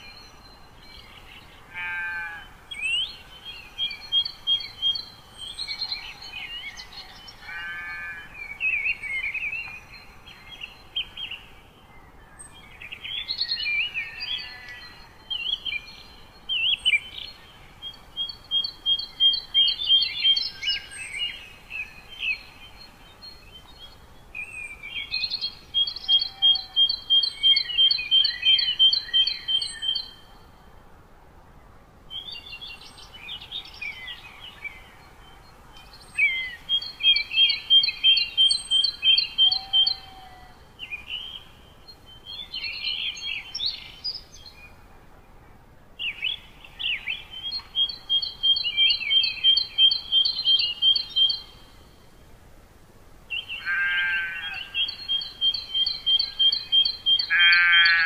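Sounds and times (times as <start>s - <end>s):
faint steady hiss: 0.0s - 58.0s
songbird singing: 0.0s - 58.0s.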